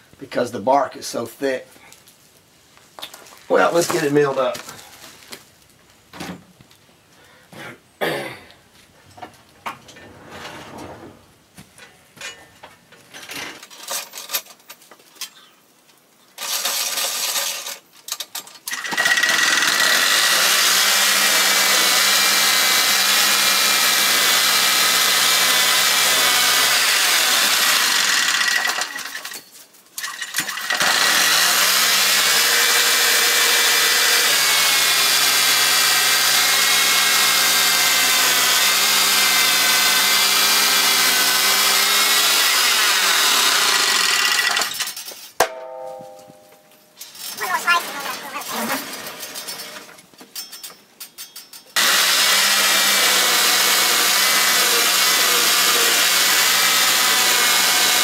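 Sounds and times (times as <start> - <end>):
saw blade cutting log: 18.7 - 29.4, 30.0 - 45.0, 47.4 - 49.9, 51.8 - 58.0
sawmill engine running: 30.5 - 44.8, 51.8 - 58.0.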